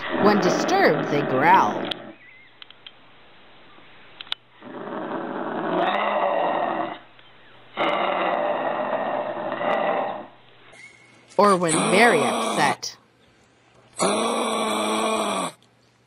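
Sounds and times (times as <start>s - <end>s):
kangaroo growling: 0.1s - 2.2s, 4.6s - 7.1s, 7.7s - 10.4s, 11.6s - 12.9s, 14.0s - 15.6s.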